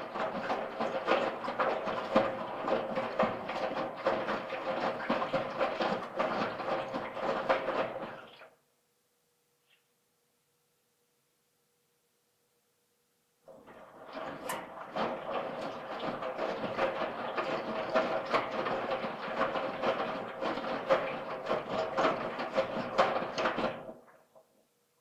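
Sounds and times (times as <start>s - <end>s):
washing machine drum turning: 0.0s - 8.2s, 13.5s - 24.0s.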